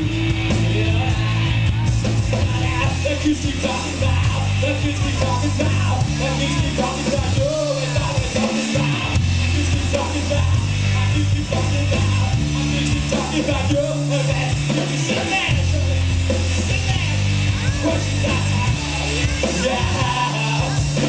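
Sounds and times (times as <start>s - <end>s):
drum kit with cymbals: 0.0s - 21.0s
electric bass line: 0.0s - 21.0s
electric guitar: 0.0s - 21.0s
man singing shouted vocals: 0.0s - 21.0s.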